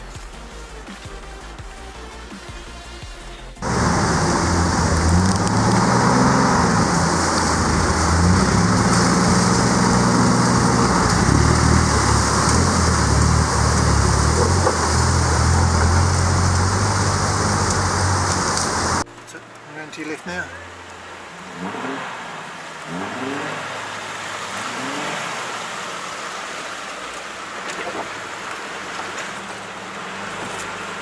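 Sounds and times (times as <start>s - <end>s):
truck engine working under load: 3.6s - 19.0s
rushing creek water: 3.6s - 31.0s.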